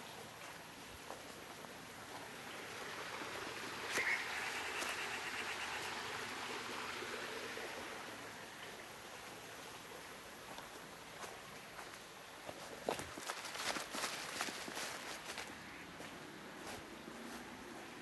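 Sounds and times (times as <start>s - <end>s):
steady forest hiss: 0.0s - 18.0s
rapid trilling animal call: 3.8s - 6.4s.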